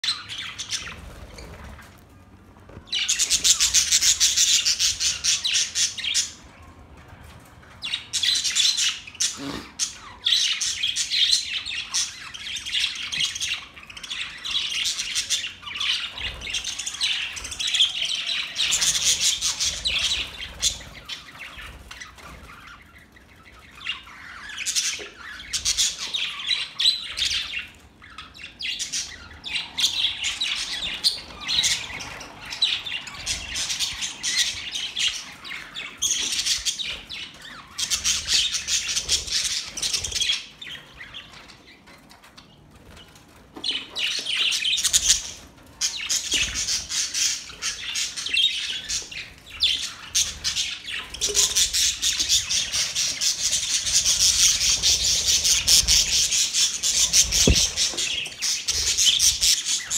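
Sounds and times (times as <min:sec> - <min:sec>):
budgerigars chattering: 0:46.0 - 0:59.9.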